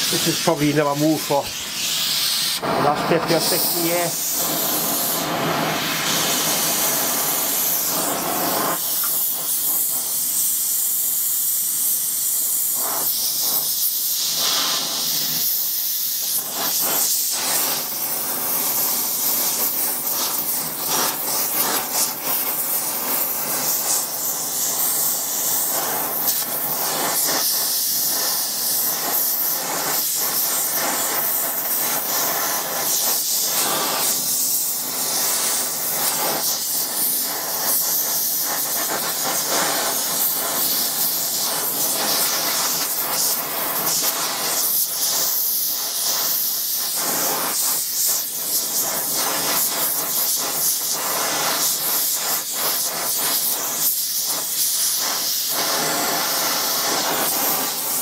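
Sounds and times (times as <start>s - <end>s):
gas torch flame hissing: 0.0s - 58.0s.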